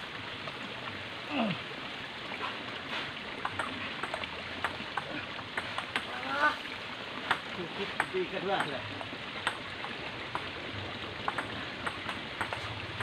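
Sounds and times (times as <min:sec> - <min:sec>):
ping pong ball clicking: 0:11.3 - 0:12.6.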